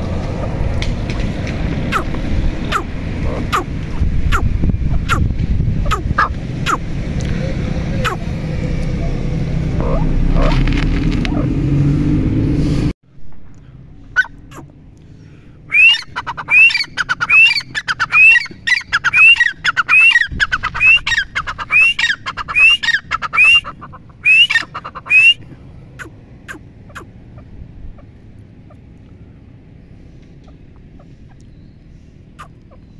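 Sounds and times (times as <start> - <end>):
francolin calling: 1.9 - 3.7, 15.7 - 28.8.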